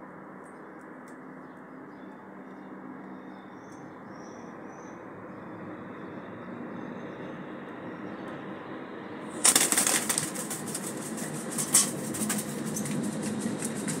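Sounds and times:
crow wings flapping: 9.4s - 14.0s.

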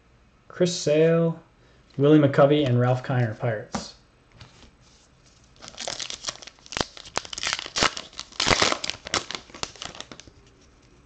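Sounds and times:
plastic wrapper crinkling: 5.2s - 11.0s.

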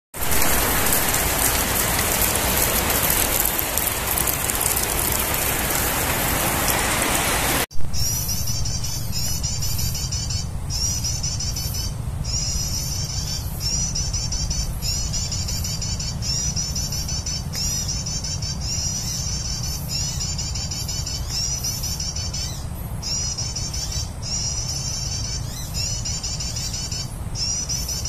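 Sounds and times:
heavy rain pouring: 0.1s - 7.7s
low hum: 7.7s - 16.2s
bird chirping trills: 8.0s - 28.0s.

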